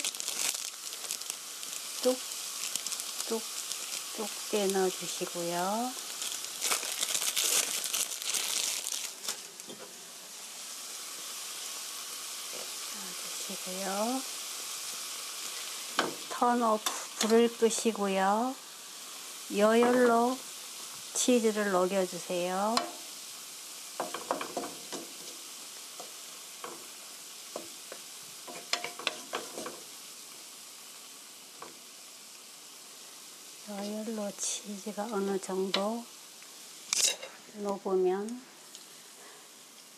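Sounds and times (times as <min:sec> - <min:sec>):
cheese slices crinkling: 0:00.0 - 0:04.1, 0:06.0 - 0:09.6
vegetables sizzling in a frying pan: 0:00.0 - 0:39.9
wooden spoon scraping a pan: 0:27.6 - 0:29.9.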